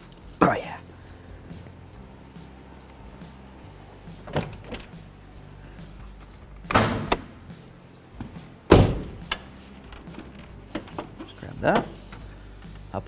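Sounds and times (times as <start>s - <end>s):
car hood thuds: 6.7s - 7.4s, 8.2s - 9.4s.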